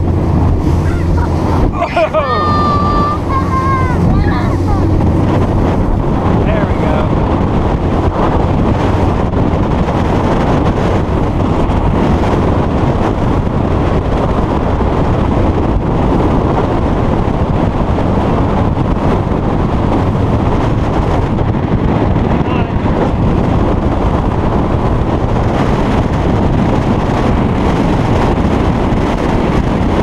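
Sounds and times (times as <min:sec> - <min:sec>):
water rushing: 0:00.0 - 0:14.2
boat engine running: 0:00.0 - 0:30.0
wind noise on microphone: 0:00.0 - 0:30.0.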